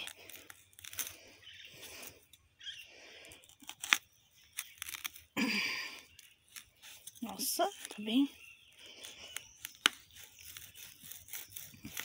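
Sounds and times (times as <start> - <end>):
machete scraping plant fibre: 0.0 - 2.3, 3.3 - 12.0.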